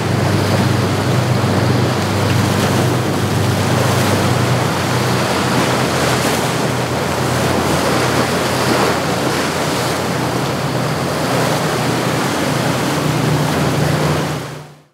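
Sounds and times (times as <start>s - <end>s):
low hum of boat engines: 0.0s - 14.9s
surf and waves: 0.0s - 14.9s.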